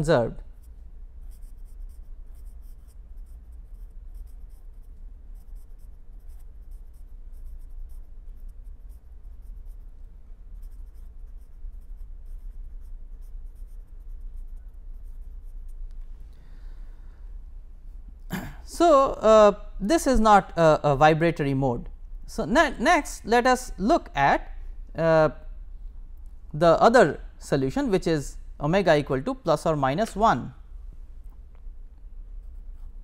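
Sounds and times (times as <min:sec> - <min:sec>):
steady low hum: 0:00.0 - 0:33.0
marker pen scratching on paper: 0:00.5 - 0:15.9, 0:32.4 - 0:33.0.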